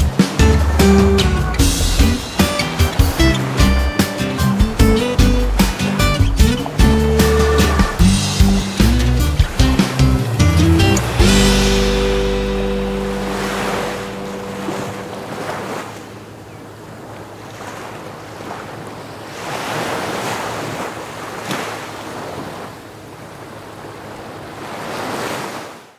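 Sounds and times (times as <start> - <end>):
background music: 0.0 - 15.8
sea waves washing ashore: 0.0 - 25.9.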